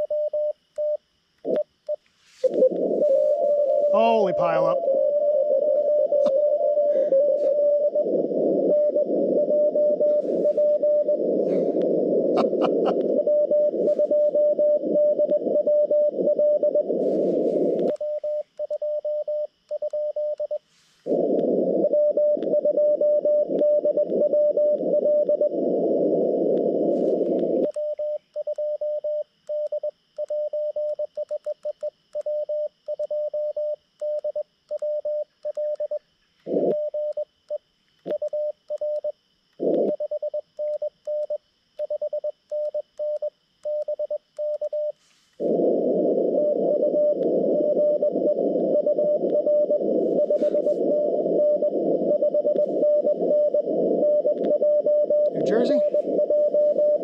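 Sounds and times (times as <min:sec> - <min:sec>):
morse code signals: 0:00.0 - 0:37.3, 0:38.1 - 0:57.0
radio band noise: 0:02.3 - 0:18.0, 0:21.0 - 0:22.6, 0:23.4 - 0:27.7, 0:36.4 - 0:36.8, 0:39.6 - 0:40.0, 0:45.4 - 0:57.0.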